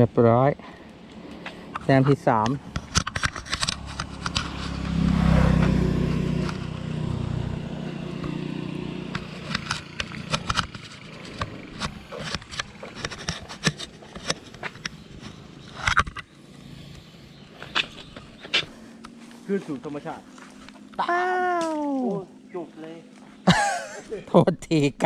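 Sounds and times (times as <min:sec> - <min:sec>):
vehicle passing: 0:03.5 - 0:13.0, 0:16.3 - 0:21.0.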